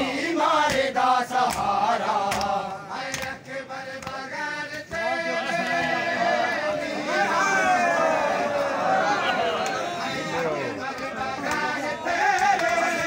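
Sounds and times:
men chanting a lament: 0.0 - 13.0
chest-beating slaps: 0.6 - 5.0, 10.9 - 13.0.

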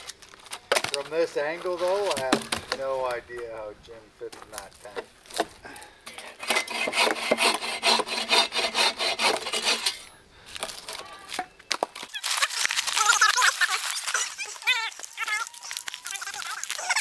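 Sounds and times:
saw cutting through branch: 6.3 - 10.1.

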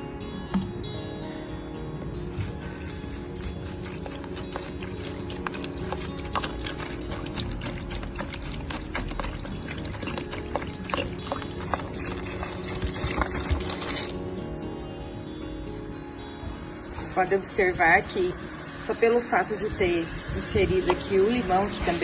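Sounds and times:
juice splashing into basin: 2.2 - 15.1.

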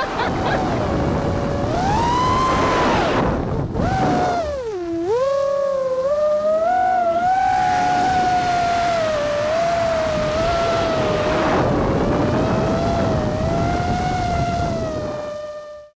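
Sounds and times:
quadcopter motors whining: 0.0 - 15.9
rushing air noise: 7.1 - 15.3.

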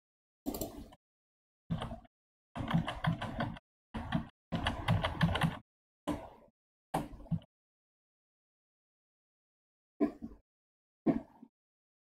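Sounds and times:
computer keyboard clicks: 2.6 - 5.6.

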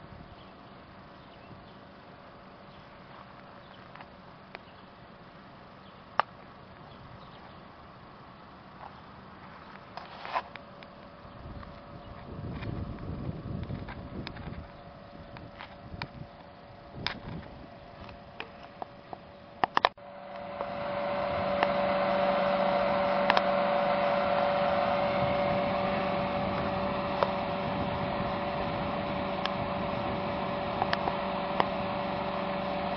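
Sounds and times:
wind: 0.0 - 32.9
sharp clicks: 19.6 - 20.7.

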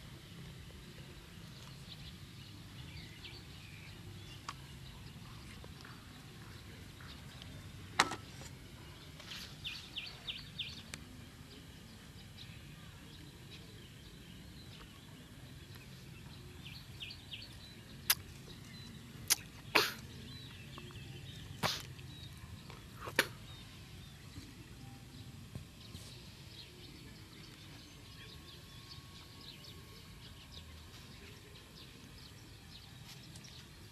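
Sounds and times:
small birds chirping: 0.0 - 33.9
sharp clicks or snaps: 19.3 - 20.0.

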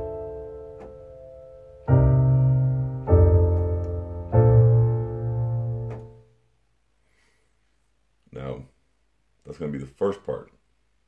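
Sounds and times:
keyboard playing chords: 0.0 - 6.3.

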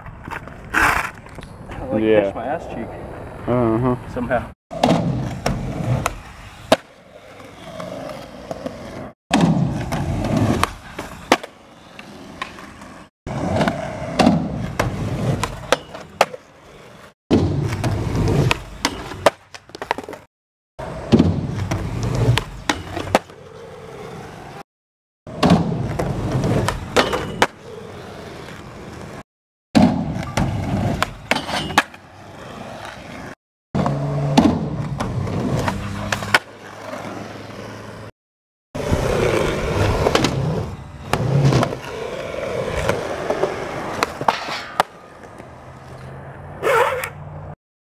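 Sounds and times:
skateboard wheels rolling on concrete: 0.0 - 24.6, 25.3 - 29.2, 29.8 - 38.1, 38.8 - 47.6
skateboard clacks and impacts: 13.5 - 16.4, 25.3 - 27.6.

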